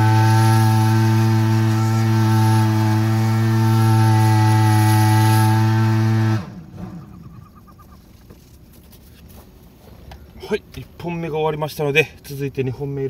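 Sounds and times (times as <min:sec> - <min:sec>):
engine-driven blower running: 0:00.0 - 0:07.4.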